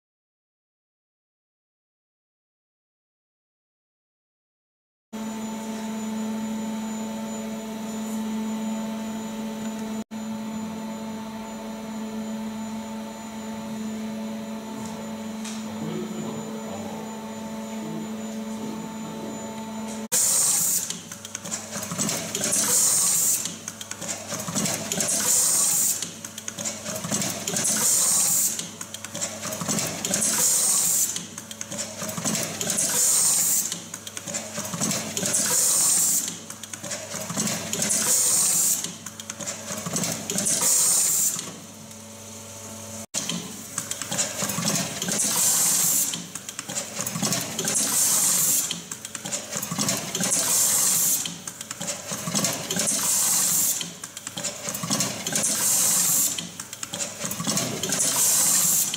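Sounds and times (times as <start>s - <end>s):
steady hum with held tones: 5.2s - 20.1s
pneumatic air hiss: 20.1s - 21.0s, 22.4s - 23.6s, 25.0s - 26.1s, 27.7s - 28.7s, 30.0s - 31.3s, 32.8s - 33.8s, 35.3s - 36.4s, 37.9s - 39.0s, 40.5s - 41.5s, 47.6s - 48.8s, 50.2s - 51.4s, 52.8s - 53.9s, 55.4s - 56.5s, 57.9s - 58.9s
machine clatter: 20.1s - 41.6s, 43.2s - 58.9s.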